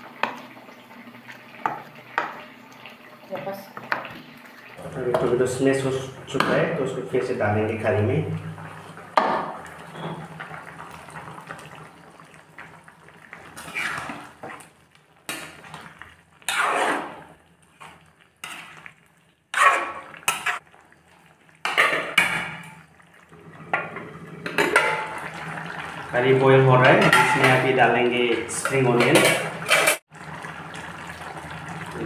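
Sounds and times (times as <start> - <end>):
spoon scraping and knocking on wok: 19.5 - 20.6.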